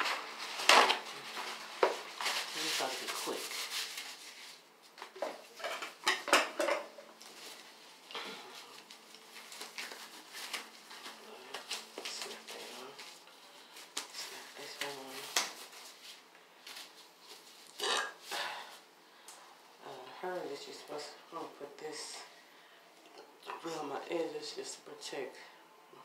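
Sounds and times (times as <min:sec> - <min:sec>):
packaging crinkling: 0:08.6 - 0:17.8.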